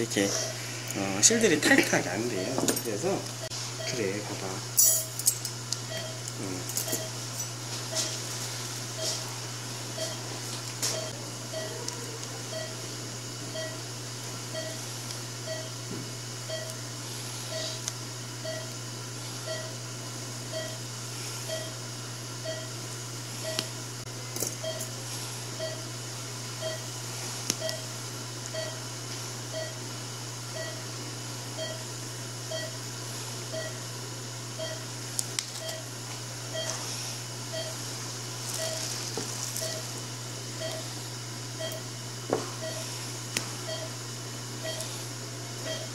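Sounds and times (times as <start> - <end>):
low electrical hum: 0.0 - 45.9
patient monitor beeping: 1.3 - 2.8, 3.8 - 4.3, 5.9 - 7.2, 7.9 - 8.2, 9.0 - 9.3, 10.0 - 12.9, 13.5 - 13.9, 14.5 - 15.8, 16.4 - 16.8, 17.4 - 18.8, 19.4 - 19.8, 20.5 - 20.8, 21.4 - 21.8, 22.4 - 22.8, 23.4 - 23.7, 24.6 - 25.0, 25.6 - 25.9, 26.6 - 26.9, 27.6 - 27.9, 28.5 - 28.8, 29.5 - 29.8, 30.5 - 31.0, 31.6 - 31.9, 32.5 - 32.8, 33.5 - 33.8, 34.6 - 34.9, 35.6 - 35.9, 36.5 - 36.8, 37.5 - 37.8, 38.5 - 39.0, 39.6 - 40.0, 40.6 - 41.0, 41.6 - 41.9, 42.6 - 43.0, 43.7 - 44.0, 44.6 - 45.0, 45.6 - 45.9.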